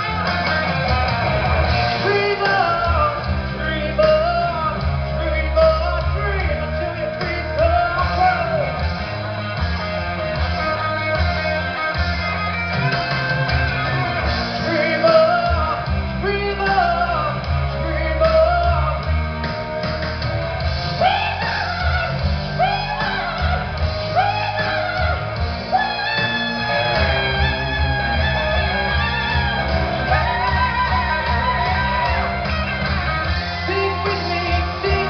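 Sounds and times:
person singing: 0.0s - 9.1s, 14.4s - 19.2s, 20.9s - 32.6s, 33.4s - 35.0s
guitar: 0.0s - 35.0s
rock band playing: 0.0s - 35.0s.

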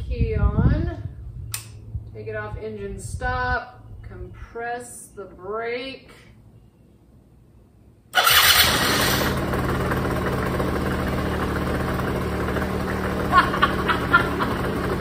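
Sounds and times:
electric starter cranking: 8.2s - 15.0s
scooter engine running: 8.2s - 15.0s.

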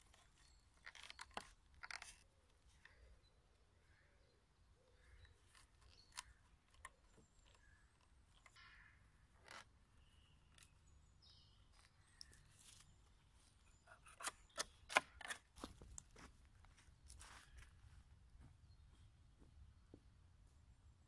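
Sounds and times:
faint bird chirps: 2.6s - 15.0s.

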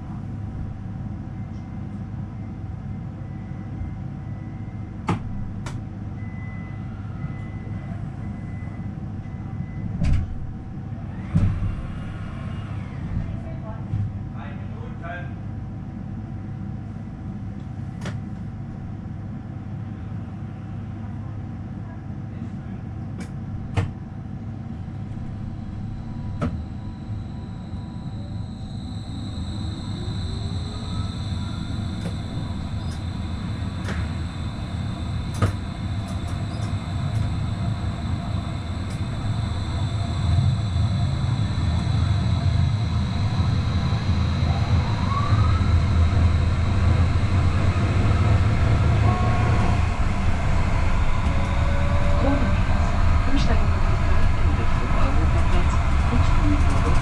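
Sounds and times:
high steady whine: 24.6s - 57.0s
wheel on rail rumble: 24.6s - 57.0s.

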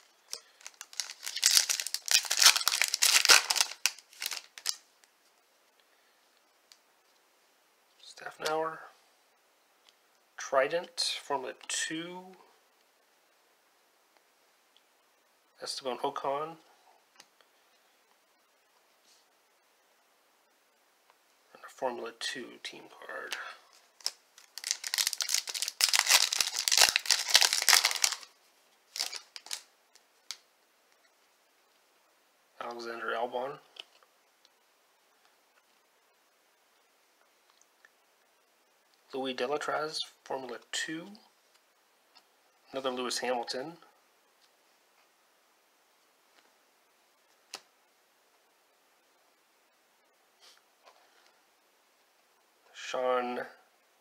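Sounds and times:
foil wrapper crinkling and tearing: 0.3s - 4.8s, 23.3s - 28.3s, 28.9s - 29.7s.

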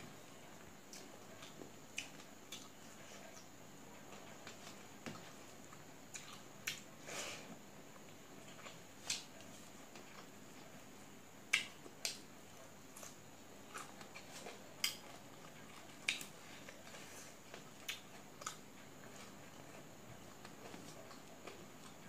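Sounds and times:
wet clicks of hand mixing rice: 0.6s - 6.9s, 8.0s - 13.2s, 13.8s - 22.0s
chewing: 4.2s - 6.9s, 11.5s - 22.0s.

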